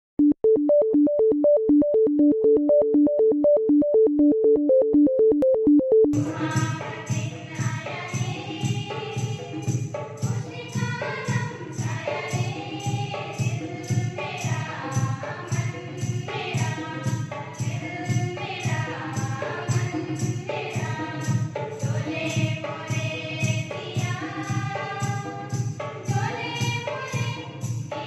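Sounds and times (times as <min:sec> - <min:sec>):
choir-like singing: 0:06.2 - 0:28.0
percussion beat: 0:06.2 - 0:28.0.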